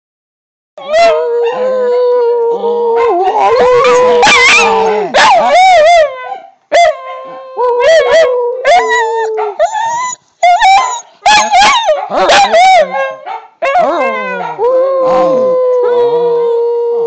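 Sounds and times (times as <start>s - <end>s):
puppies howling: 3.0s - 16.0s.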